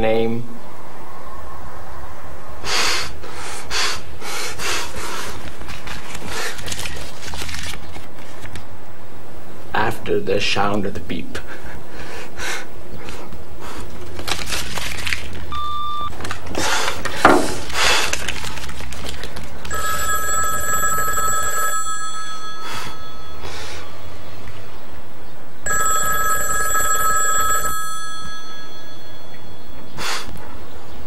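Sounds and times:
desk telephone ringing: 19.7 - 24.0, 25.7 - 29.9.

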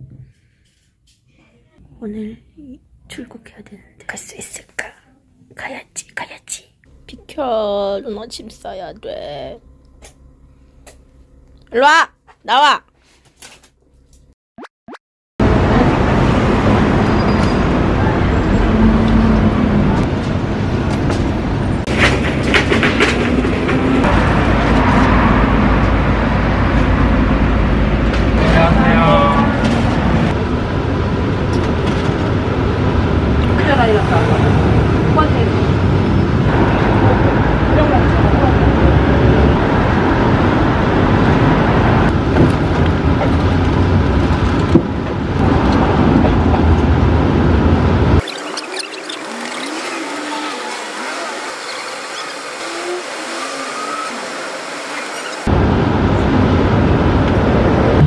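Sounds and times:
large vehicle rumbling past: 15.4 - 48.2, 55.5 - 58.0
heavy street traffic noise: 15.4 - 58.0.

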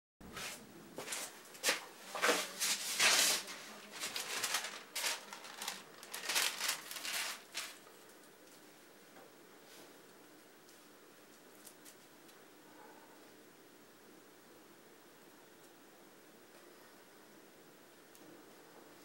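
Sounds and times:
paper rustling and crinkling: 1.0 - 8.1.

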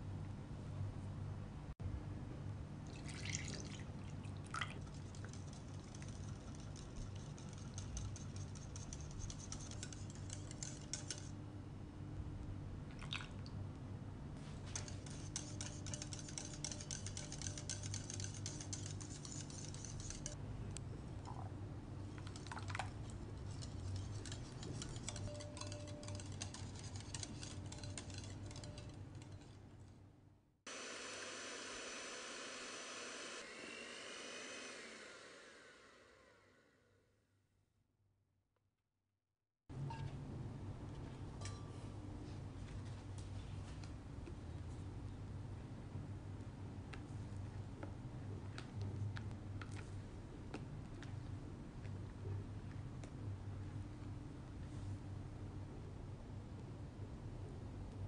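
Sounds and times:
stirring in a glass bowl: 3.4 - 11.4, 14.5 - 20.4, 21.3 - 29.6.

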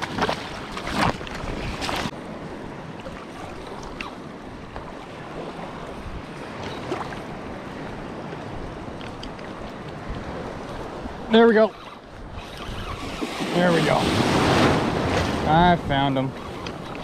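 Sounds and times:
wind on microphone: 0.0 - 17.0
surf washing over rocks: 12.9 - 16.4.

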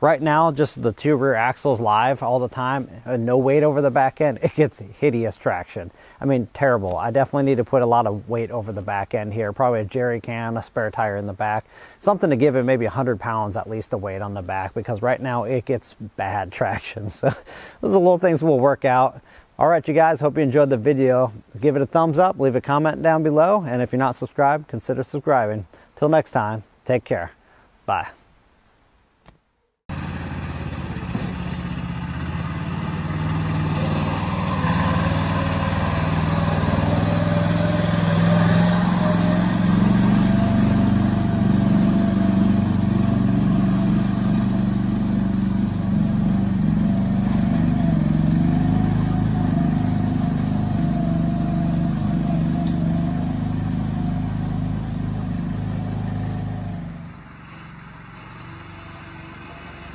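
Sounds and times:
single-cylinder engine under load: 29.9 - 59.9.

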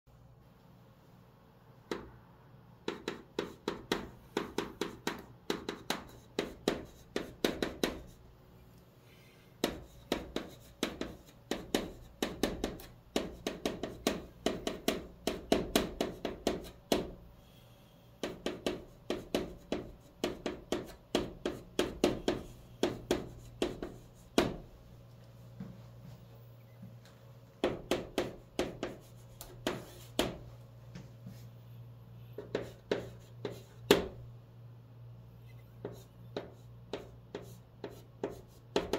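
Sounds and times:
chalk writing on chalkboard: 2.8 - 8.2, 9.6 - 17.2, 18.2 - 24.7, 27.6 - 31.6, 32.2 - 34.2, 35.5 - 38.9.

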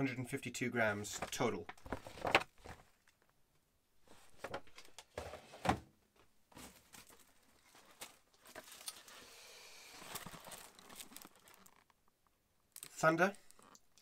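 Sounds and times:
plastic wrap rustling: 6.5 - 12.0.

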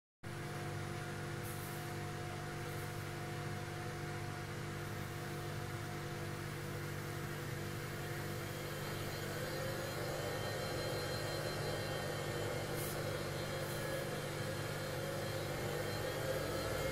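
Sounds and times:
disc sander motor humming: 7.9 - 16.9.

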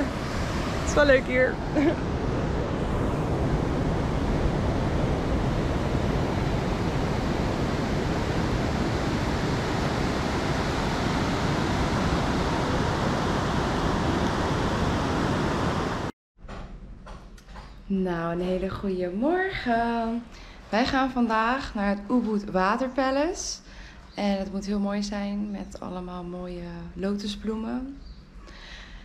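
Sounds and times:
ocean surf: 0.0 - 16.1
wind: 0.0 - 16.1.

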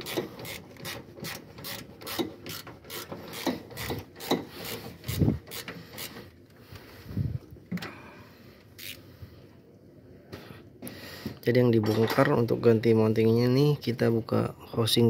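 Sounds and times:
ratchet wrench clicking: 0.0 - 6.2, 8.8 - 9.0.

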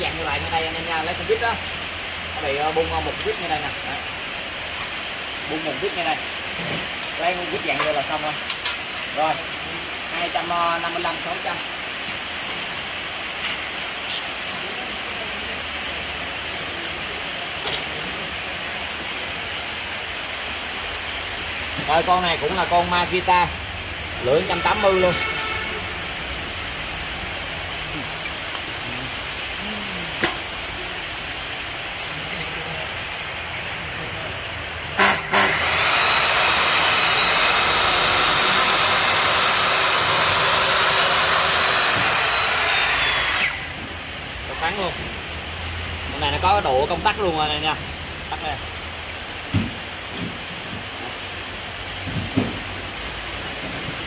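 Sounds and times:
steady background hiss: 0.0 - 35.3, 36.0 - 54.0
power tool motor whining: 35.0 - 43.8.

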